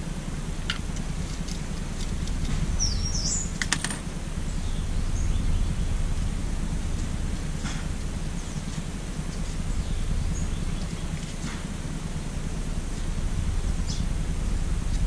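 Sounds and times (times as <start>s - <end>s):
low background rumble: 0.0s - 15.0s
bird chirp: 2.6s - 3.6s, 4.4s - 6.2s, 8.2s - 11.7s, 12.8s - 14.5s.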